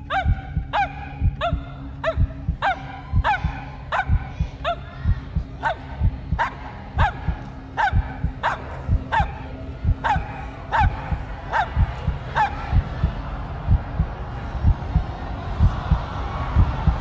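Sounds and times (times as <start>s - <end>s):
small dog barking: 0.1s - 4.8s, 5.6s - 9.4s, 10.0s - 11.8s.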